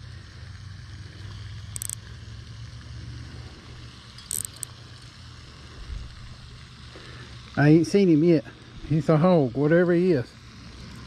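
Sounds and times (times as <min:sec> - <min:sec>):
fishing reel drag buzzing: 0:00.0 - 0:11.0
steady low hum: 0:00.0 - 0:11.0.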